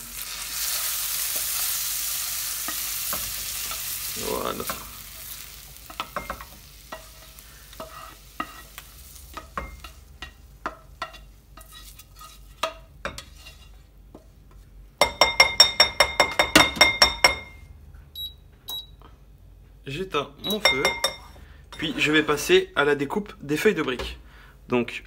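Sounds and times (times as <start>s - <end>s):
faint sizzle: 0.0s - 14.7s
tongs scraping a frying pan: 0.2s - 14.3s
ringing taps: 15.0s - 17.6s, 20.5s - 21.3s.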